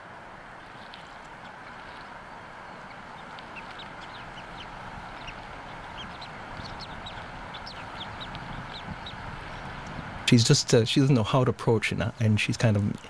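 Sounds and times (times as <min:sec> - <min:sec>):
steady hiss: 0:00.0 - 0:12.8
bird chick peeping: 0:00.6 - 0:09.9.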